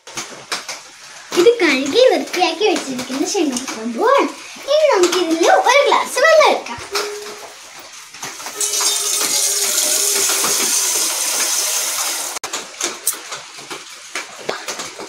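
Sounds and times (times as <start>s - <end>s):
tap water running into saucepan: 7.0s - 12.4s.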